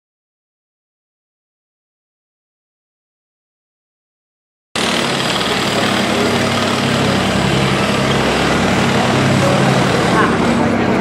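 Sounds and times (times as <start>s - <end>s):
crowd background noise: 4.8s - 11.0s
steady engine drone: 4.8s - 11.0s.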